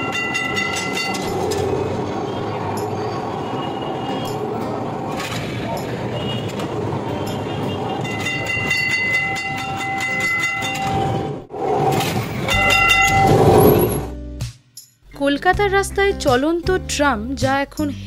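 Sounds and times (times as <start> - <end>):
tram rumbling on rails: 0.0 - 14.1.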